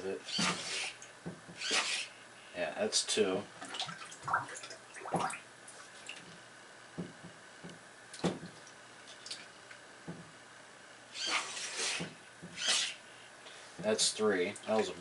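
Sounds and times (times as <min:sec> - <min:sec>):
water splashing and dripping: 0:03.6 - 0:05.4.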